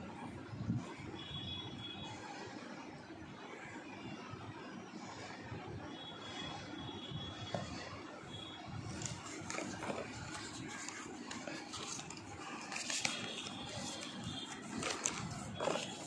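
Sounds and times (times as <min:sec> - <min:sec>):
cardboard scraping and rustling: 0:08.9 - 0:16.0.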